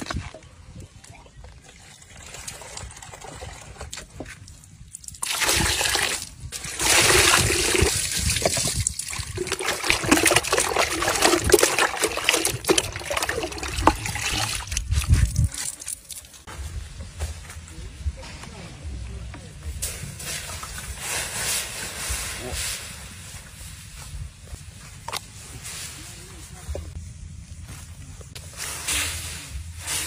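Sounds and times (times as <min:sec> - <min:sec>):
water splashing into plastic bucket: 0:05.0 - 0:16.4
water sloshing: 0:05.2 - 0:16.5.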